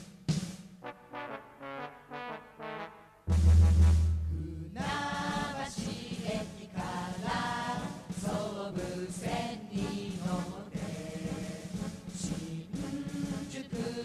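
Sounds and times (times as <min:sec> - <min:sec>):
chant-like singing: 0:04.3 - 0:14.0.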